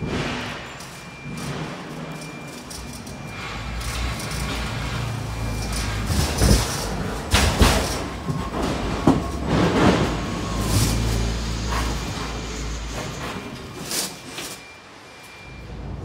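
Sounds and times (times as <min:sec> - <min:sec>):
knocks and rattles: 0:00.0 - 0:12.2
rolling road noise: 0:00.0 - 0:16.0
truck engine drone: 0:00.0 - 0:16.0.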